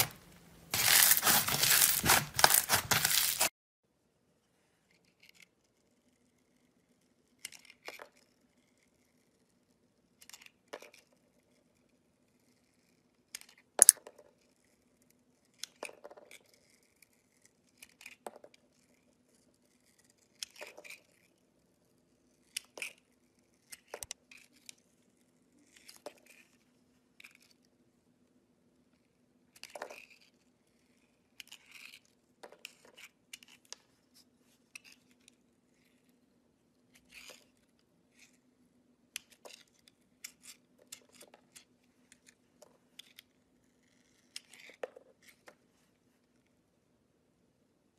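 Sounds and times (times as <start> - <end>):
knife blade scraping soap: 0.0 - 3.5, 14.4 - 21.4, 29.6 - 33.8, 39.2 - 45.5.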